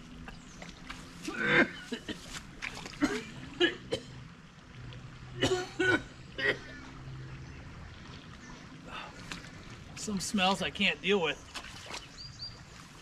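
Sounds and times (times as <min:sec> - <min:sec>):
man coughing and gagging: 0:01.3 - 0:02.2, 0:03.0 - 0:04.2, 0:05.4 - 0:06.6.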